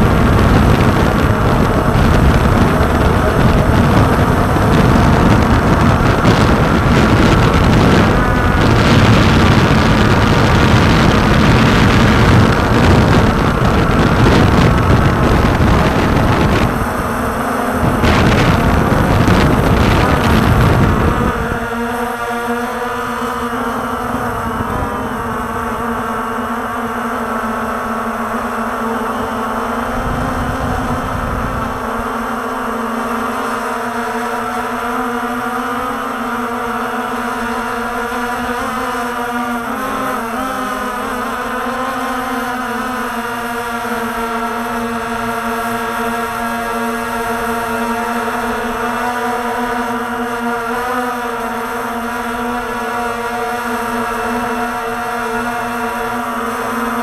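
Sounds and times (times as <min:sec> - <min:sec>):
wind buffeting: 0:00.0 - 0:40.4
drone motor hum: 0:00.0 - 0:57.0.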